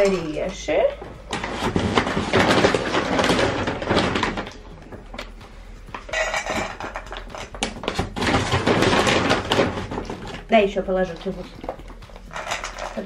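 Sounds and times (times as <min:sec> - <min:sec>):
kibble rattling in a bag: 0:11.1 - 0:13.0
kibble clattering into a bowl: 0:12.3 - 0:13.0.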